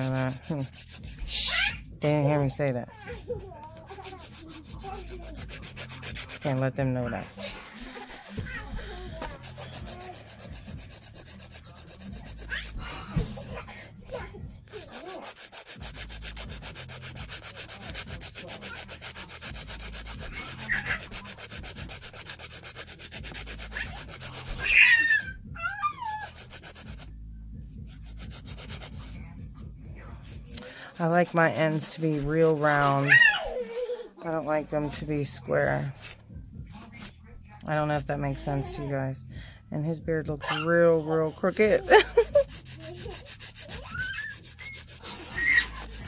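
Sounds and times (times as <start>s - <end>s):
nail file rubbing on nail: 0.0s - 1.7s, 3.6s - 25.3s, 26.0s - 27.1s, 27.8s - 33.5s, 40.9s - 46.0s.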